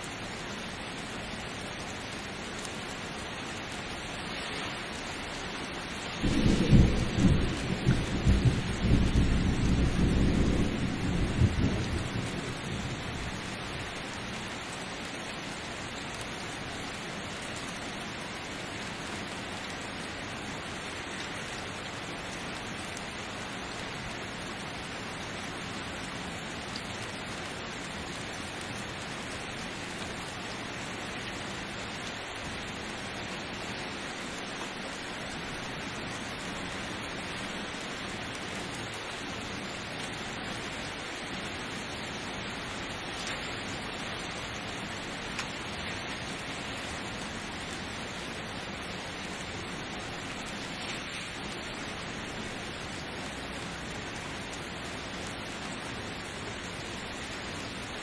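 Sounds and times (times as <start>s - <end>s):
steady rain: 0.0s - 58.0s
thunder rumble: 6.2s - 14.0s.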